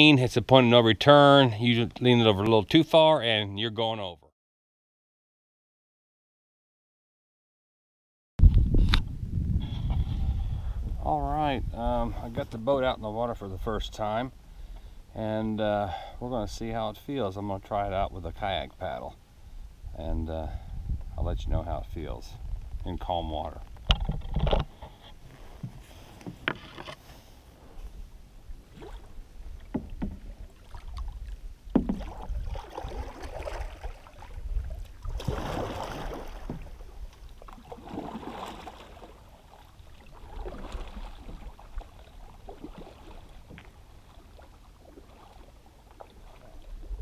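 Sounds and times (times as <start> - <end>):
paddle splashing through water: 28.5 - 47.0
sharp knocks: 31.7 - 32.1.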